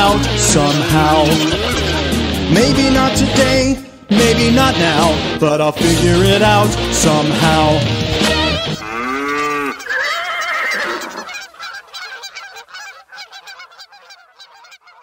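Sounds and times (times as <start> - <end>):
geese honking: 0.0 - 15.0
cow mooing: 8.6 - 11.3.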